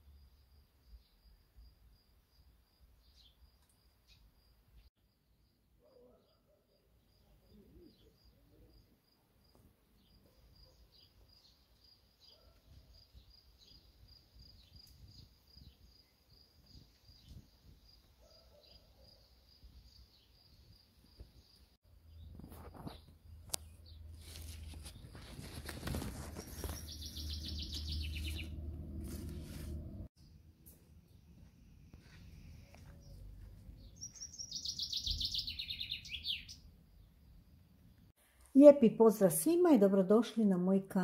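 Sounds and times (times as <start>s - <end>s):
faint high chirp: 33.8s - 36.7s.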